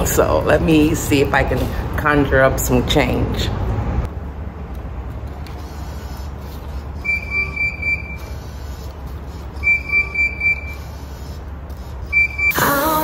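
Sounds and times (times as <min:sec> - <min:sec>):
quick high beeps: 0:07.0 - 0:08.3, 0:09.6 - 0:10.9, 0:12.1 - 0:12.8.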